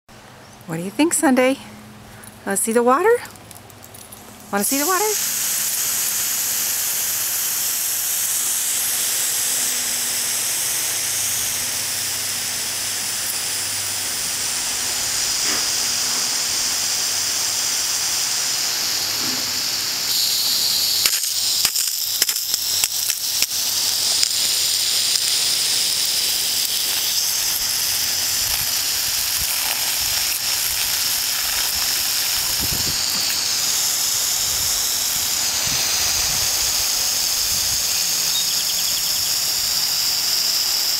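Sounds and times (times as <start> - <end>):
sharp crackles: 3.2 - 9.3, 20.1 - 40.9
water jet spraying: 4.5 - 40.9.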